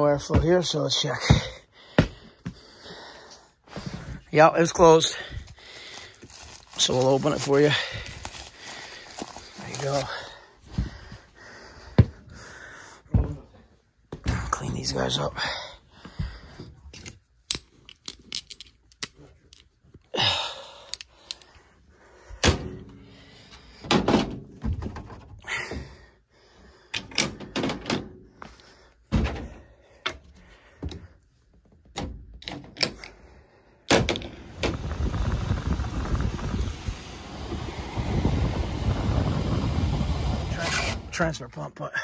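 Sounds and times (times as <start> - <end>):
rustling: 5.4 - 10.1
steady rushing noise: 34.3 - 41.4.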